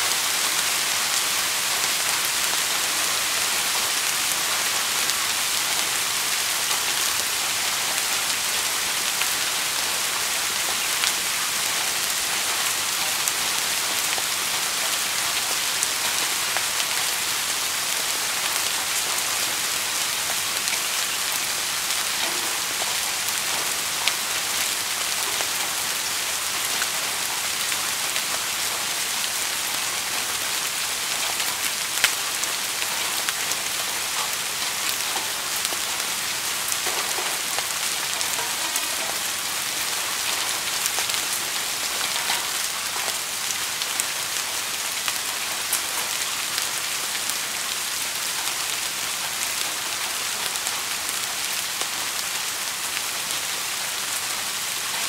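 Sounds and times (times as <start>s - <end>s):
steady rain hiss: 0.0s - 55.0s
raindrops ticking: 31.2s - 43.9s.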